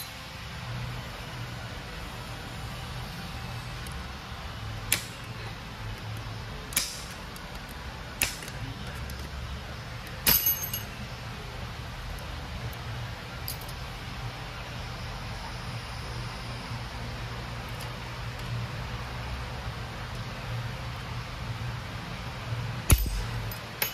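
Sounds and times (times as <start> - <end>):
steady low hum: 0.0 - 23.9
metal parts clinking: 10.0 - 11.0, 13.4 - 13.8, 22.9 - 23.9.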